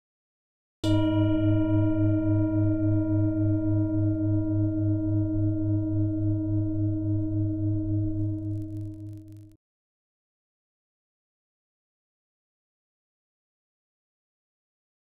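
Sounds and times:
singing bowl ringing: 0.8 - 9.4.

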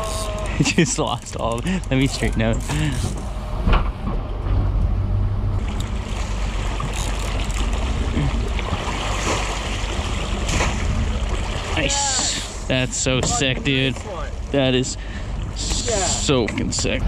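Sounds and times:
water and wind hiss: 0.0 - 3.6, 5.6 - 17.0
boat engine rumbling: 0.0 - 17.0
fish splashing water: 5.6 - 12.7.

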